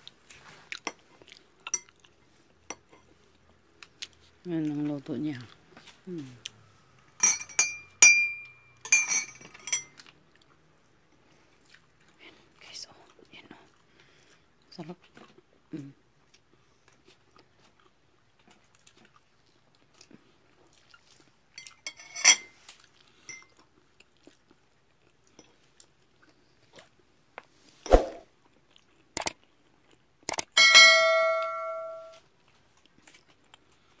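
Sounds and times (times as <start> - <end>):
metallic clink: 7.2 - 9.9, 21.6 - 22.5, 30.6 - 32.2
sharp clicks: 29.2 - 29.4, 30.3 - 30.6
notification bell ding: 30.6 - 32.2.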